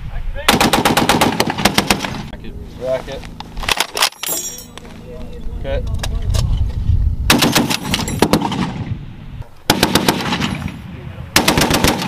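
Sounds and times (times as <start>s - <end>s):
machine gun firing bursts: 0.5s - 2.3s, 7.3s - 8.8s, 9.7s - 10.7s, 11.4s - 12.0s.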